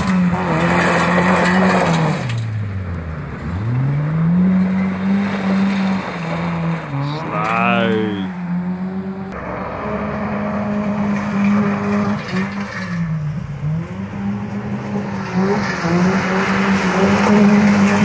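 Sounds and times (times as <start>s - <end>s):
car engine revving hard: 13.6s - 18.0s.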